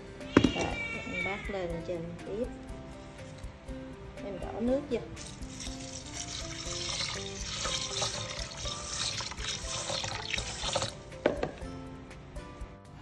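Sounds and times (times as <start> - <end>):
water pouring into pot of rice: 5.2 - 11.0.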